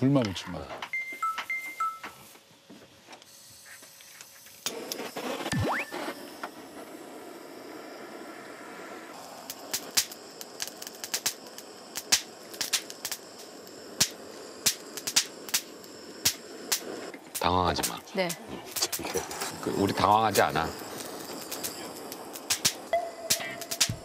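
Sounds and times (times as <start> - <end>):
butane torch hissing: 2.2 - 24.0
charcoal crackling and popping: 9.1 - 24.0.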